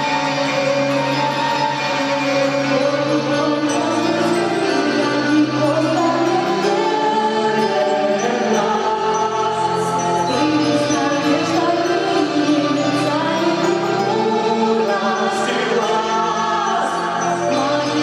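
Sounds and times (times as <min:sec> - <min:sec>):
keyboard chords: 0:00.0 - 0:18.0
person singing: 0:00.0 - 0:18.0.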